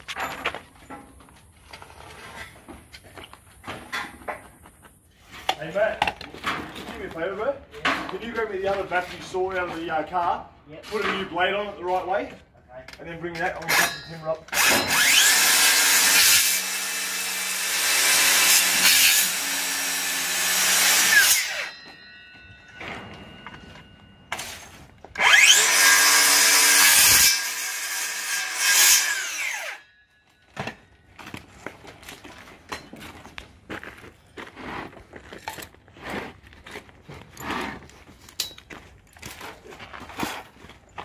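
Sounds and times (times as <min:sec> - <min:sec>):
knocks and scrapes: 0:00.0 - 0:10.2, 0:10.8 - 0:12.2, 0:30.5 - 0:41.0
circular saw cutting concrete: 0:13.7 - 0:21.8, 0:25.2 - 0:29.9.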